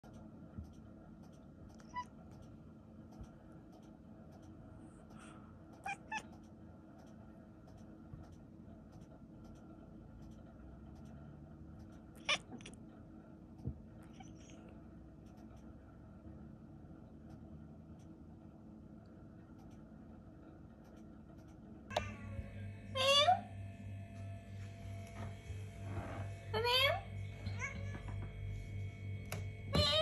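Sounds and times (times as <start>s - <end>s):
cat meowing: 5.8s - 6.2s, 12.2s - 12.7s.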